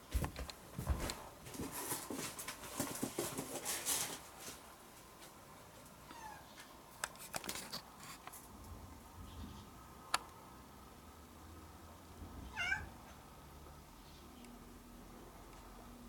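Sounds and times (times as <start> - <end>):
cat meowing: 12.4 - 13.0.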